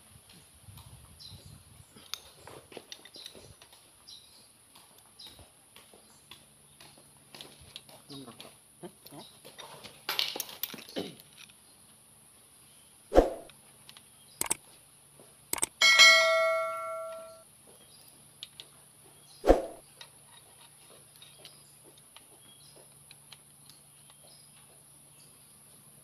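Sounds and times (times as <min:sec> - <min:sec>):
tool clicks and knocks: 0:15.6 - 0:17.3
tool striking metal ringing: 0:15.8 - 0:17.4.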